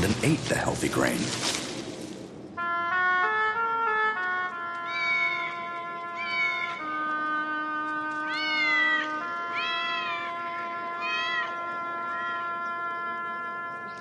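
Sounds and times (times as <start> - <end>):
cat meowing: 4.9 - 5.6, 6.2 - 6.8, 8.2 - 10.3, 11.0 - 11.6.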